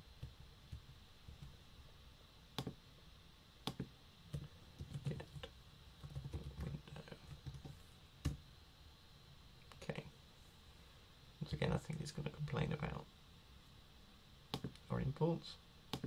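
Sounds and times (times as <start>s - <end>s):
typing on a computer keyboard: 3.7s - 8.4s.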